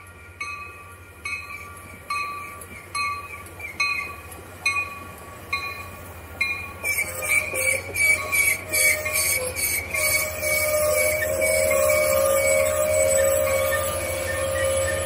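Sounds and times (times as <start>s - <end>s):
train arriving: 0.0s - 15.0s
train brakes squealing: 0.0s - 15.0s.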